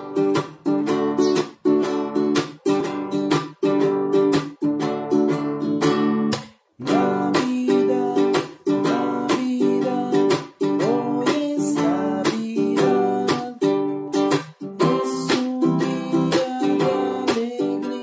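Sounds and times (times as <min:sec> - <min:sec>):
plucked string instrument strumming: 0:00.0 - 0:18.0
man singing: 0:06.8 - 0:18.0.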